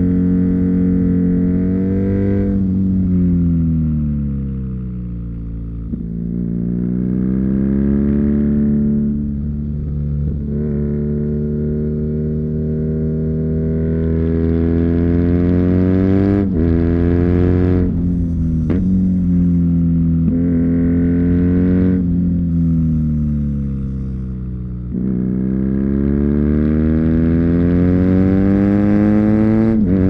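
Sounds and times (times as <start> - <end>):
motorcycle engine accelerating: 0.0 - 30.0.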